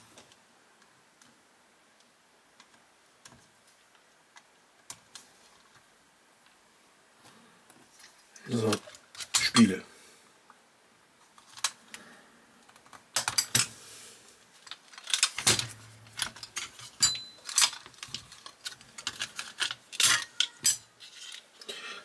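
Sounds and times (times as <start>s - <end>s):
model car parts clicking and clattering: 8.6s - 9.7s, 11.2s - 11.8s, 12.6s - 13.7s, 14.6s - 21.6s.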